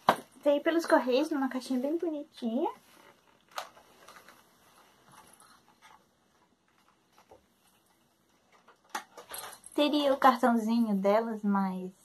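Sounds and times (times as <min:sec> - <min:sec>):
plastic packaging rustling: 0:02.8 - 0:09.8.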